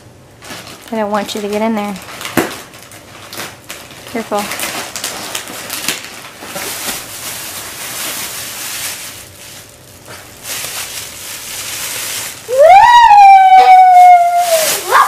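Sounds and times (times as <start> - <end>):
plastic packaging crinkling: 0.4 - 15.0
loud high-pitched wail: 12.5 - 15.0.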